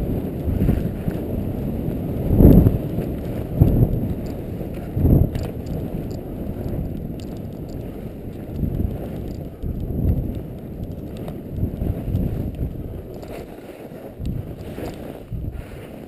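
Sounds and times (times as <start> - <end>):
skis sliding on snow: 0.0 - 16.0
wind rushing over microphone: 0.0 - 16.0.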